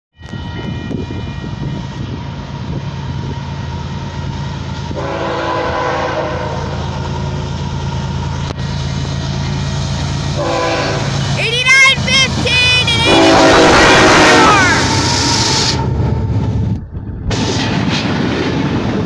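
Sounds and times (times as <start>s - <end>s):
diesel locomotive rumble: 0.2s - 19.0s
train air horn: 4.9s - 6.8s, 10.4s - 11.2s, 12.9s - 15.9s.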